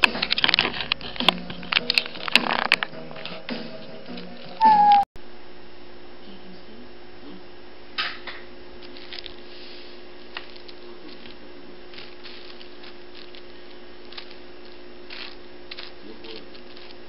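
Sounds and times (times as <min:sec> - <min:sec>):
steady hum: 0:00.0 - 0:17.0
paper rustling and scraping: 0:08.8 - 0:17.0.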